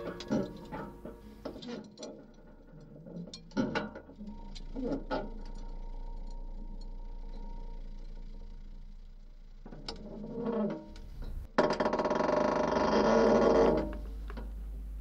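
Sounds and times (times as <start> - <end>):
faint held tones: 0.0 - 11.5
low hum: 0.0 - 15.0.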